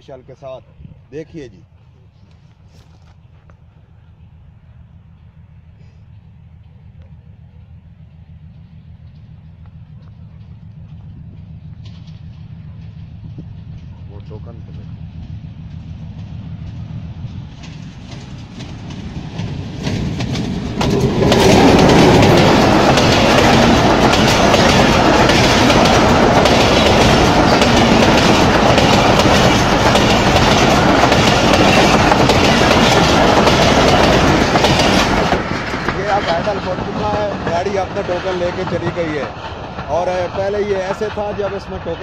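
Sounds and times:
locomotive engine hum: 0:00.0 - 0:42.0
train coaches rushing past: 0:00.0 - 0:42.0
train wheel clatter: 0:08.5 - 0:42.0.

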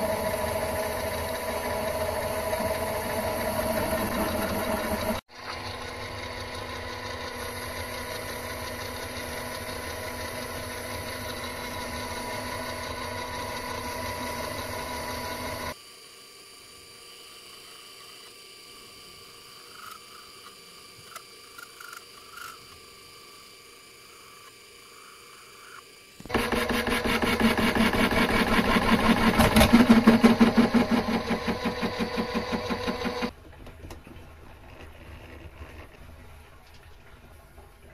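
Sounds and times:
metal lathe motor humming: 0:00.0 - 0:15.8, 0:26.3 - 0:33.4.

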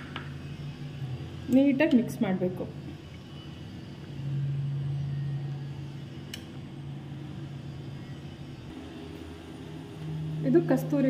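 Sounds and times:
motor humming: 0:00.0 - 0:11.0.

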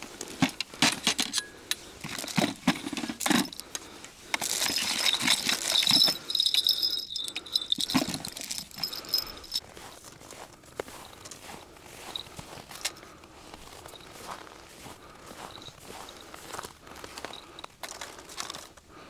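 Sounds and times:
tackle clicking and rattling in bucket: 0:00.2 - 0:09.6.

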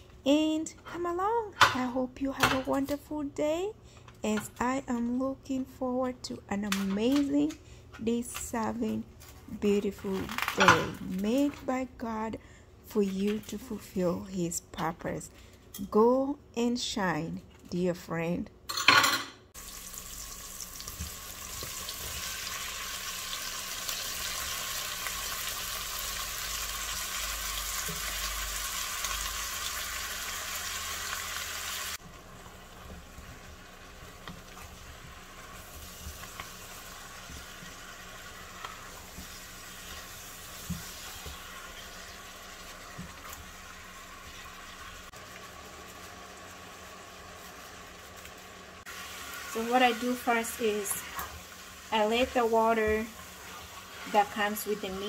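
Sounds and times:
meat sizzling in pot: 0:19.6 - 0:55.0.

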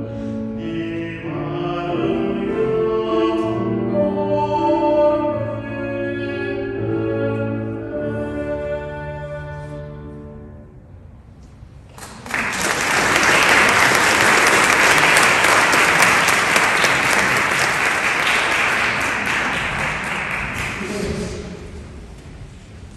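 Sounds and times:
audience clapping: 0:11.9 - 0:21.5.

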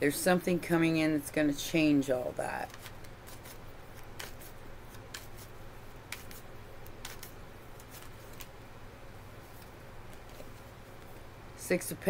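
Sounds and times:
cards being shuffled: 0:02.6 - 0:08.6.

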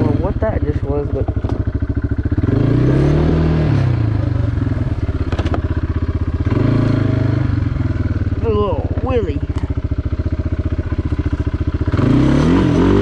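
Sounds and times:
atv engine revving: 0:00.0 - 0:13.0.

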